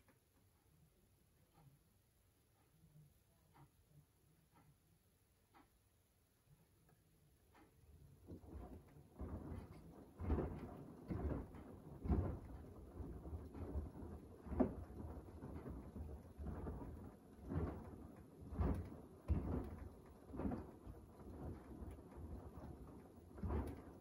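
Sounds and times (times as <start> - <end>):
wet laundry sloshing in drum: 8.2 - 24.0.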